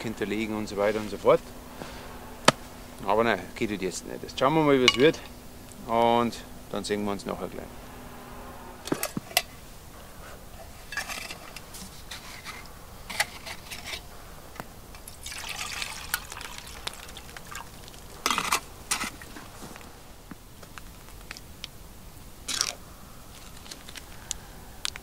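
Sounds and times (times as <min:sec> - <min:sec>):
liquid pouring from bottle: 0:15.2 - 0:18.0.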